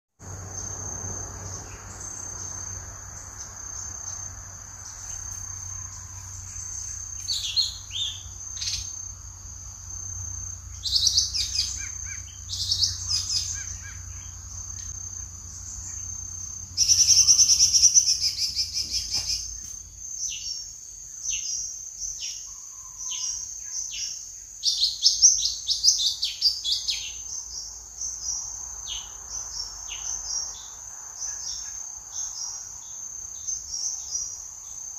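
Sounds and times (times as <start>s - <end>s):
high-pitched insect drone: 0.2s - 34.9s
bird rapid chatter: 16.8s - 19.8s.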